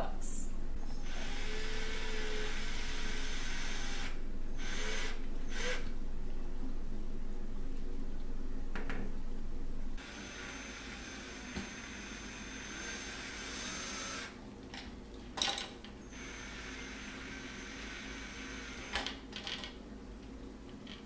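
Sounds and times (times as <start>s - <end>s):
cordless drill motor: 1.0s - 5.9s, 10.0s - 14.4s, 16.1s - 19.0s.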